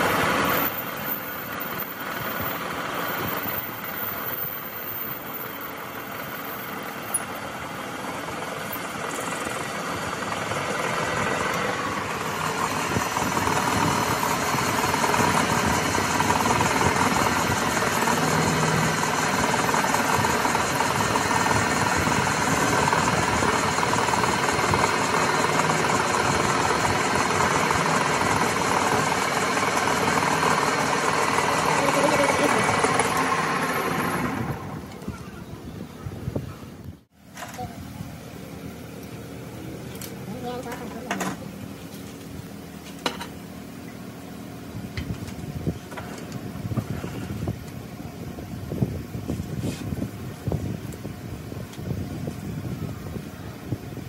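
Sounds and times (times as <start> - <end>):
metal lathe cutting steel: 0.0 - 34.8
workshop machinery hum: 0.0 - 54.0.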